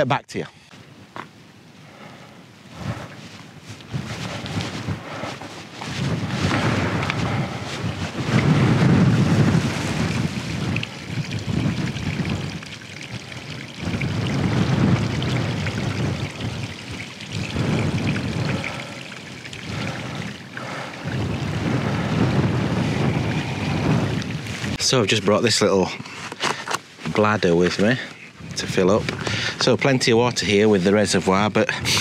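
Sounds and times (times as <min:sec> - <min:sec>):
wind rumbling on microphone: 0:01.9 - 0:26.4, 0:27.0 - 0:32.0.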